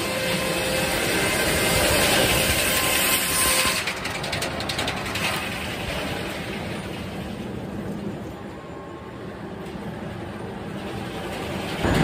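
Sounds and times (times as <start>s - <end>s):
circular saw cutting log: 0.0s - 3.9s
rattling clatter: 1.5s - 7.5s, 10.8s - 12.0s
mill machinery running: 9.5s - 12.0s.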